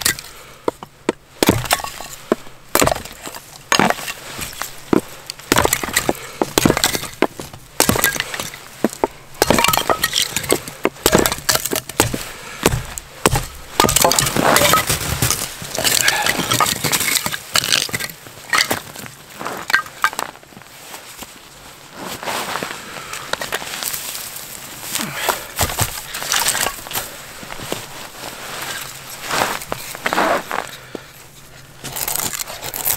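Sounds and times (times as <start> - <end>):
wood sticks cracking: 0.0 - 20.4, 23.2 - 28.0, 31.8 - 32.9
axe striking wood: 1.1 - 2.0, 2.7 - 4.0, 5.5 - 8.6, 9.4 - 18.0.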